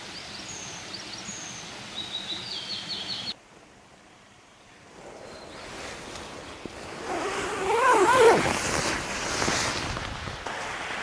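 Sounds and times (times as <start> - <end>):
tent fabric rustling: 4.9 - 11.0
tent zipper being pulled open: 4.9 - 11.0.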